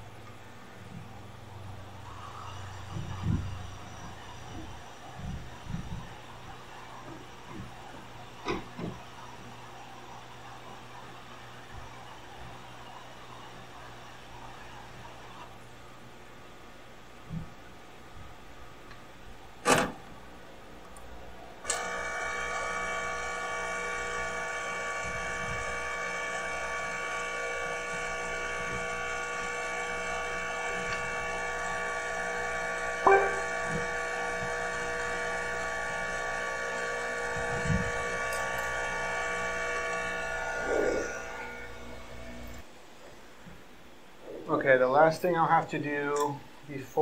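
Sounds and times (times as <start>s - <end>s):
electric blower whining: 21.6s - 42.6s.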